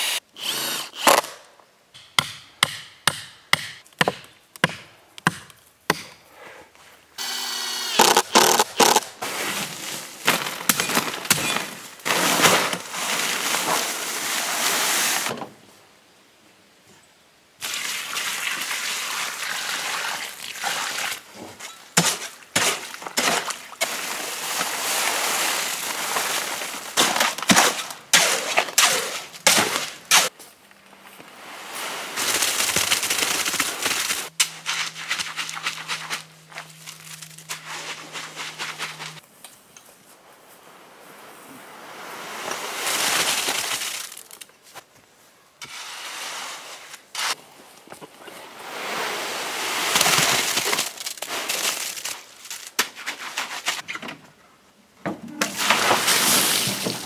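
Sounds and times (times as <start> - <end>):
hoe scraping in wheelbarrow: 8.0 - 15.4, 34.5 - 39.2, 55.5 - 57.0
wet concrete being spread: 8.4 - 15.3, 17.6 - 30.3, 55.4 - 57.0
dry concrete mix pouring: 9.2 - 15.3, 22.2 - 27.5, 55.5 - 57.0.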